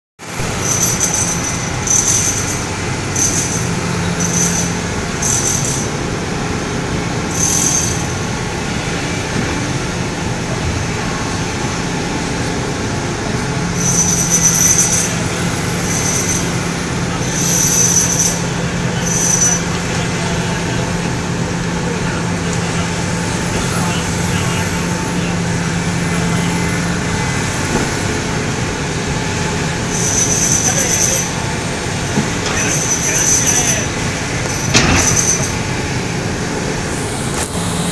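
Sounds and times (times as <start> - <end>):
excavator diesel engine running: 0.2 - 37.9
high-pitched metallic squeals: 0.4 - 6.0, 7.3 - 8.9, 13.4 - 21.0, 24.7 - 35.8.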